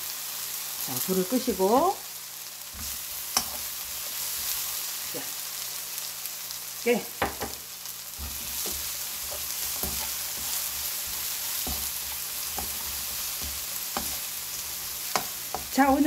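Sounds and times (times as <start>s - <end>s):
food sizzling: 0.0s - 16.0s
spoon scraping wok: 2.6s - 5.0s, 7.2s - 16.0s.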